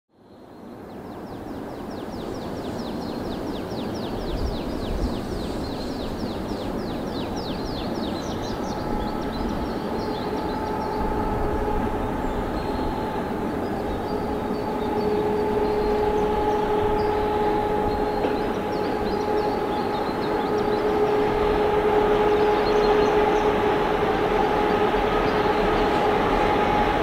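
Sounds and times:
freight train rumble: 0.3 - 27.0
locomotive whine: 4.3 - 27.0
bird chirping: 12.0 - 21.2.

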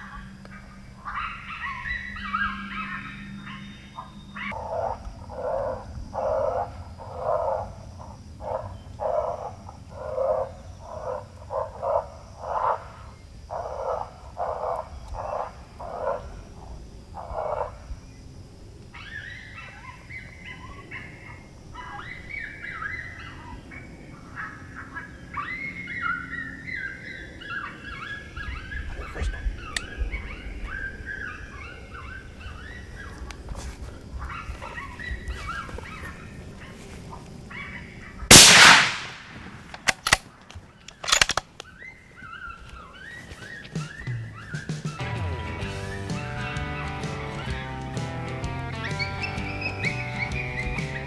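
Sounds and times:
coyote pup yelps from electronic caller: 0.0 - 12.8, 18.9 - 33.3, 34.2 - 36.9, 41.0 - 45.1, 48.7 - 51.0
rifle shot: 38.3 - 40.3
sharp clicks: 38.3 - 41.7.

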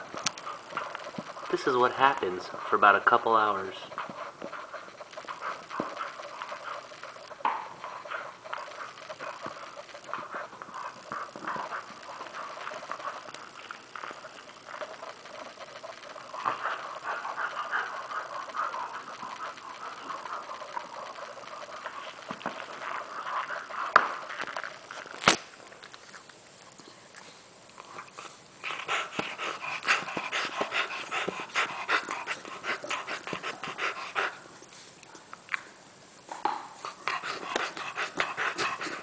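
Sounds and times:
dogs chewing hard bones: 0.0 - 26.8, 27.7 - 34.5, 36.3 - 39.0.

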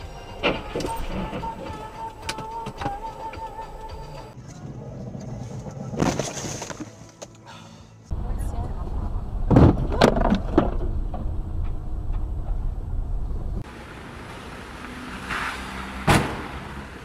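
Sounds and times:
road rumble inside moving car: 8.1 - 17.0
loud car collision crash: 16.0 - 16.8.

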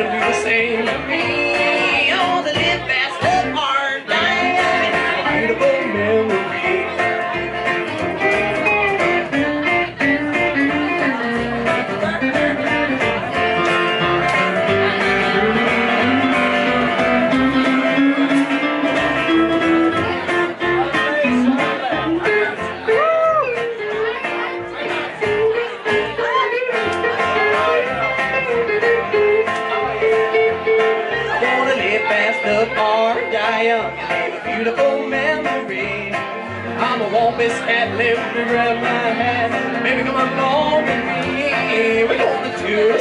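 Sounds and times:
acoustic guitar: 0.0 - 43.0
electric guitar: 0.0 - 43.0
upright bass: 0.0 - 43.0.

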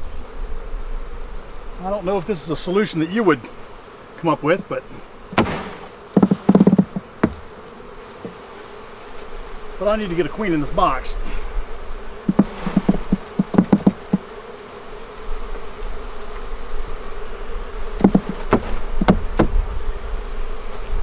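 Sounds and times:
bees buzzing: 0.0 - 21.0
wooden frame knocking: 5.4 - 7.5, 12.3 - 14.3, 18.0 - 19.6.

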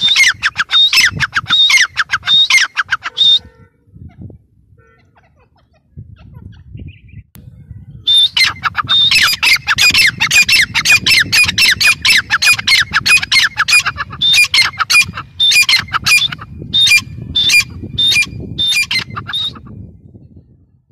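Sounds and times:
francolin harsh repeated calls: 0.0 - 3.6, 8.1 - 19.7.

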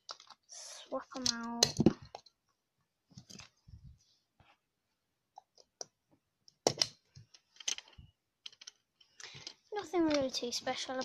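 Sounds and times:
plastic toy figures clicking: 0.0 - 2.4, 6.5 - 11.0.

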